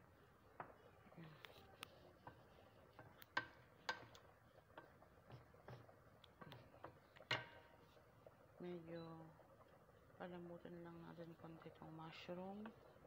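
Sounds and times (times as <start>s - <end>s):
wooden spatula scraping frying pan: 1.9s - 8.1s.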